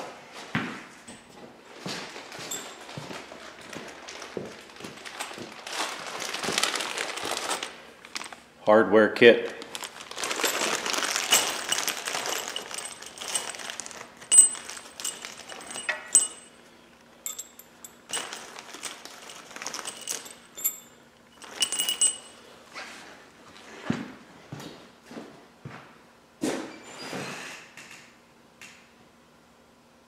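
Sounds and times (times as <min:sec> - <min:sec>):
plastic bag rustling: 0:02.0 - 0:08.5, 0:09.4 - 0:16.5, 0:17.2 - 0:22.3
metal bolts clinking: 0:10.5 - 0:16.6, 0:17.2 - 0:22.4.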